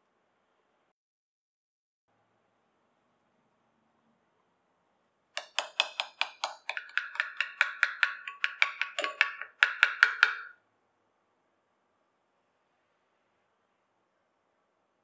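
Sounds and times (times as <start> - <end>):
metal spoon clinking glass bowl: 5.4 - 10.6.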